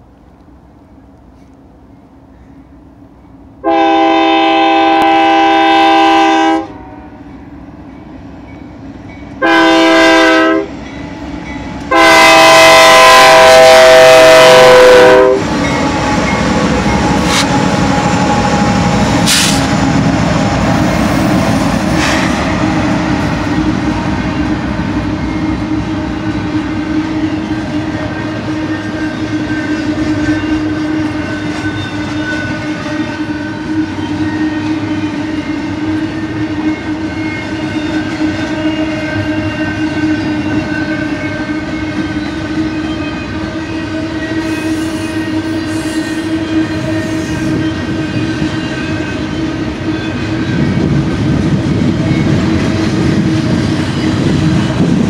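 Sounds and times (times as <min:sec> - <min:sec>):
train rumbling past: 0:00.0 - 0:55.0
locomotive air horn blasts: 0:03.6 - 0:07.2, 0:09.4 - 0:10.8, 0:11.9 - 0:15.5, 0:19.2 - 0:19.8, 0:27.0 - 0:50.3.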